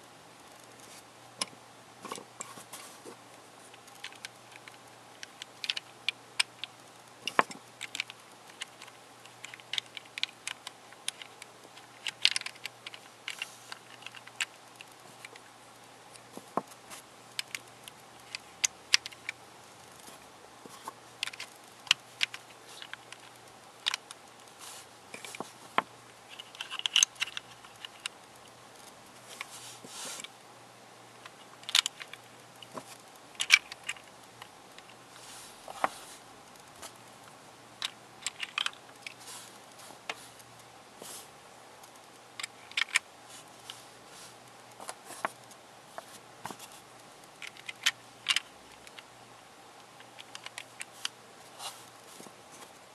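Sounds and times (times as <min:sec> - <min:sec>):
plastic puzzle pieces clicking: 0:03.7 - 0:15.4, 0:17.4 - 0:19.4, 0:20.8 - 0:24.2, 0:26.3 - 0:28.2, 0:31.5 - 0:34.9, 0:37.8 - 0:39.2, 0:42.4 - 0:43.0, 0:47.3 - 0:49.1, 0:49.9 - 0:51.8.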